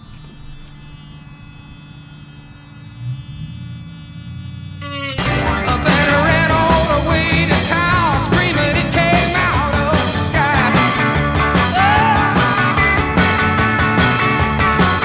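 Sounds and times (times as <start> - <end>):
rock music: 4.8 - 15.0.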